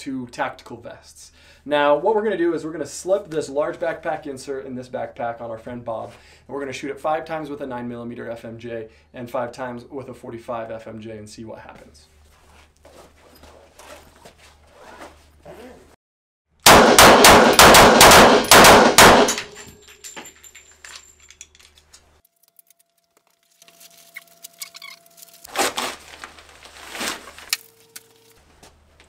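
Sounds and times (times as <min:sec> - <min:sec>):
handgun shots: 0:16.7 - 0:19.6.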